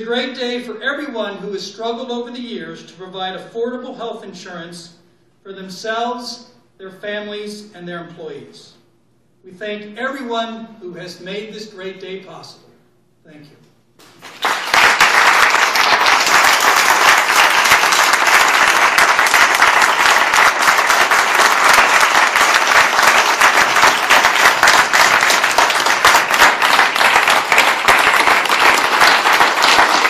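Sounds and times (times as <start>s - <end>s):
audience applauding: 14.0s - 30.0s.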